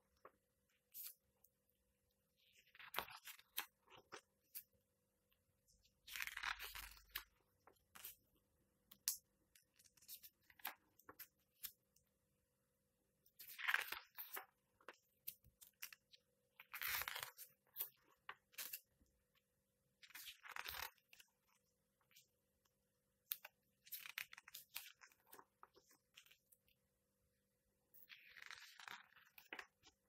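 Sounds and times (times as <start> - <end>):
comic book pages turning: 6.0 - 8.2, 13.4 - 16.1, 16.7 - 18.9, 20.0 - 21.2, 28.1 - 30.0.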